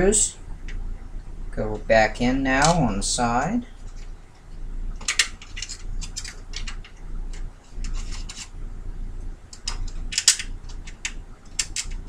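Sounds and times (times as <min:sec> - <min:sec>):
metallic clicks and scrapes: 0:05.0 - 0:08.6, 0:09.5 - 0:12.0.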